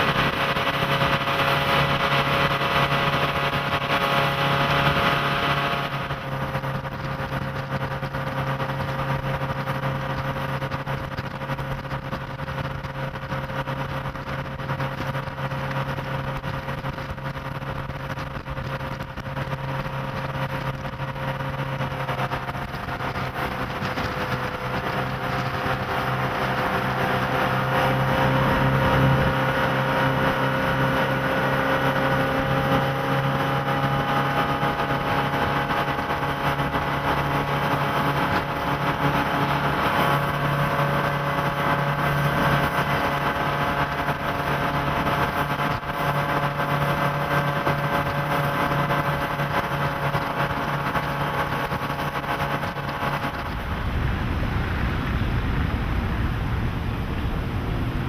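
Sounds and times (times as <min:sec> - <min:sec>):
boat engine running: 0:00.0 - 0:58.0.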